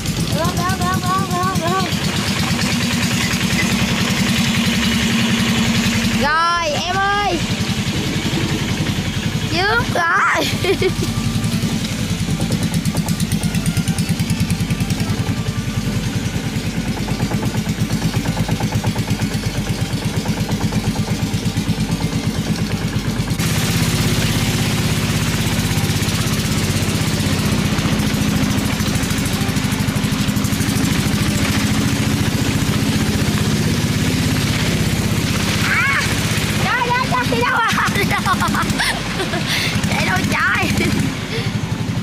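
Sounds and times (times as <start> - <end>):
boat engine running: 0.0 - 42.0.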